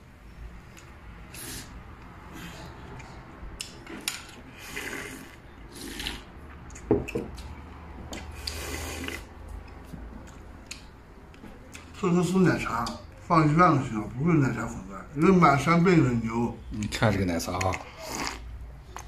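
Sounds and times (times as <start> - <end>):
slurping sips from a bowl: 1.3 - 2.8, 4.3 - 6.3, 8.3 - 9.3, 17.8 - 18.5.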